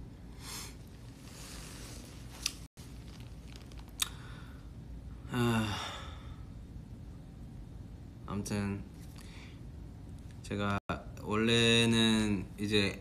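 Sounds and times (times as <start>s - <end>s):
man humming or sighing: 5.2s - 6.3s.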